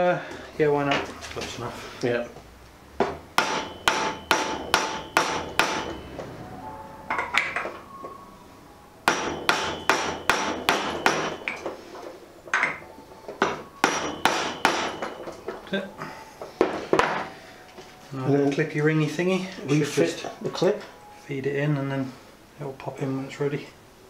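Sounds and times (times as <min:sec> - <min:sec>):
hammer striking metal socket: 0:03.4 - 0:06.0, 0:09.1 - 0:11.7.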